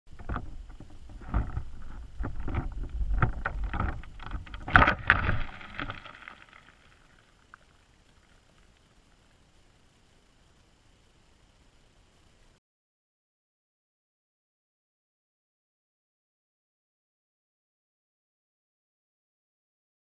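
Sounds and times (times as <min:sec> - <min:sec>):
wire trap knocking underwater: 0:00.1 - 0:06.8
water rushing: 0:01.2 - 0:10.1.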